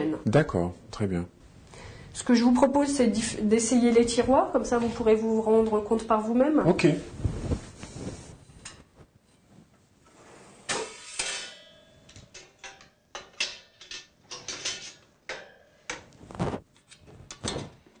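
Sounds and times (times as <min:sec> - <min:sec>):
cookware clattering: 0:10.8 - 0:16.1.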